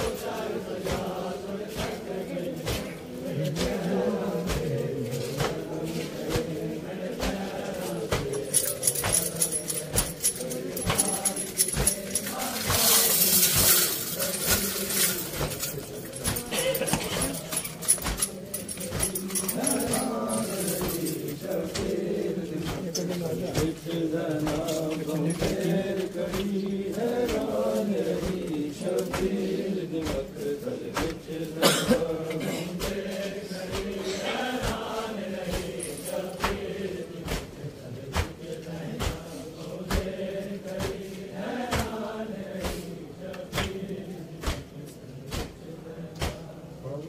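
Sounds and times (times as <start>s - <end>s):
men chanting a lament: 0.0s - 47.0s
slaps of chest-beating: 0.8s - 8.4s, 24.4s - 25.6s, 28.2s - 29.4s, 30.0s - 31.3s, 36.4s - 41.0s, 41.7s - 42.0s, 42.6s - 44.7s, 45.3s - 46.5s.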